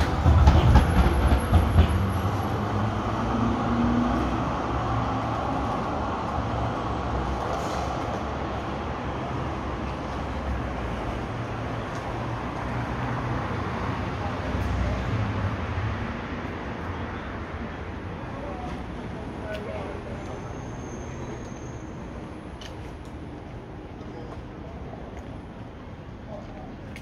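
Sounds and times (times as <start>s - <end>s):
city traffic noise: 0.0s - 27.0s
tram passing with low rumble: 0.0s - 27.0s.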